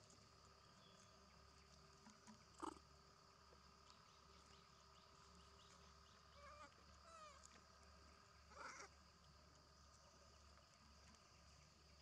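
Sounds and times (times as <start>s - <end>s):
faint high hum: 0.0s - 12.0s
wavering animal call: 8.5s - 9.0s.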